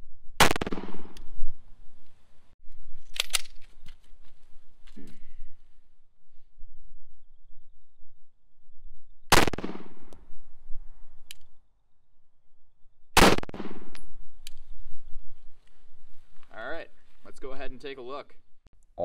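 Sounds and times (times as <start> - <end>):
pistol shots with echo: 9.3 - 10.1.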